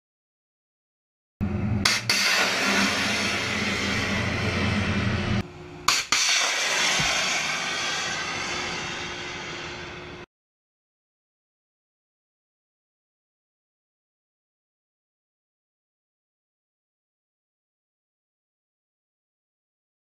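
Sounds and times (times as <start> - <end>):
rocket motor rushing: 1.8 - 10.2
sharp crack: 1.9 - 4.8, 5.9 - 9.7.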